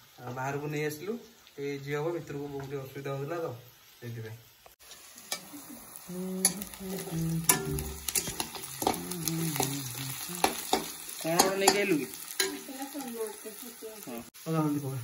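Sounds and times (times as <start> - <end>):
onions sizzling in hot oil: 0.0 - 15.0
metal spatula scraping a pan: 6.4 - 12.7.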